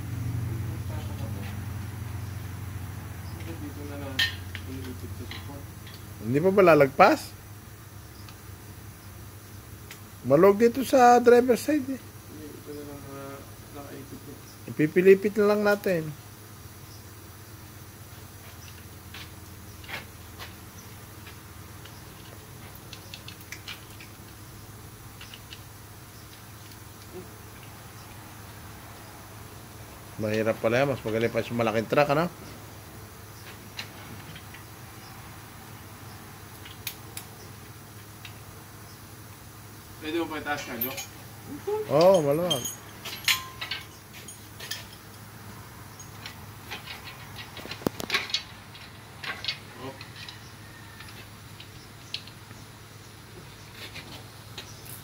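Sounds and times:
steady low hum: 0:00.0 - 0:55.0
light metallic clinks and knocks: 0:03.3 - 0:06.2, 0:40.4 - 0:45.3, 0:45.9 - 0:52.5.

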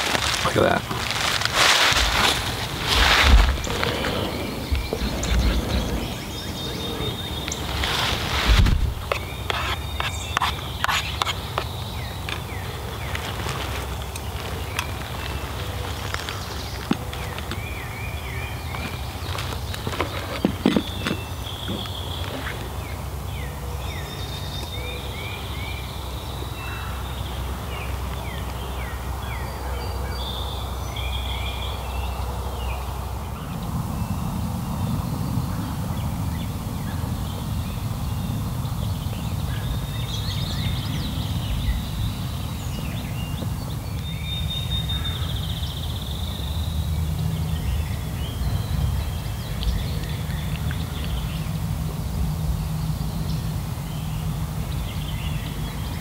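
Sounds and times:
steady low rumble: 0:00.0 - 0:09.5
songbirds singing: 0:00.0 - 0:56.0.

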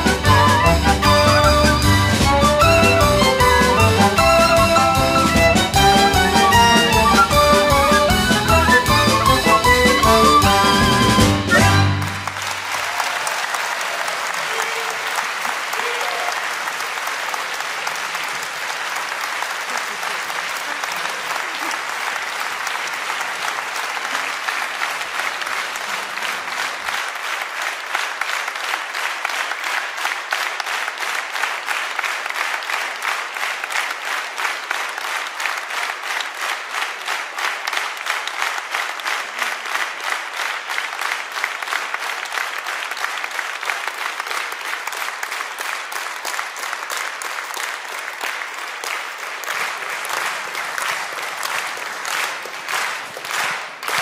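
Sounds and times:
audience applauding rhythmically: 0:00.0 - 0:54.0.

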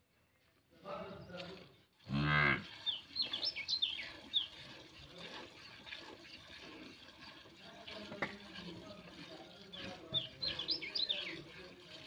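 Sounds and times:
small birds chirping: 0:02.6 - 0:11.8.

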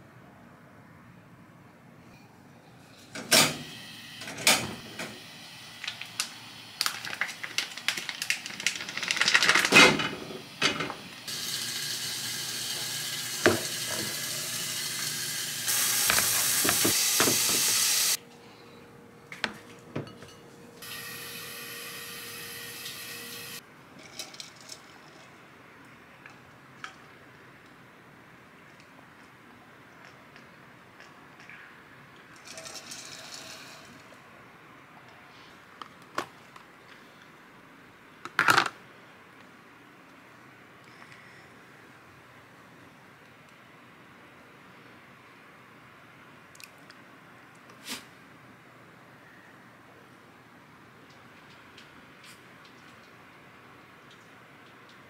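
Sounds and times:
plastic packaging crinkling: 0:05.9 - 0:09.8
meat sizzling in a pan: 0:11.3 - 0:18.2
dishes clinking: 0:19.5 - 0:20.5.

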